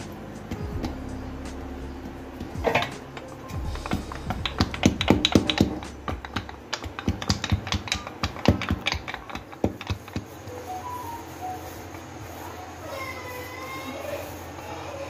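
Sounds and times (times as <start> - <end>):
rolling pin clicking on board: 2.4 - 10.5.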